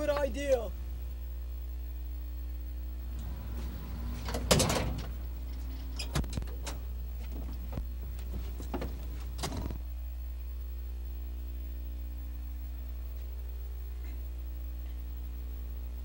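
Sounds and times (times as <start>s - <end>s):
steady low hum: 0.0s - 16.0s
van door opening clack: 4.1s - 7.6s
door handling knocks and clicks: 4.2s - 5.2s.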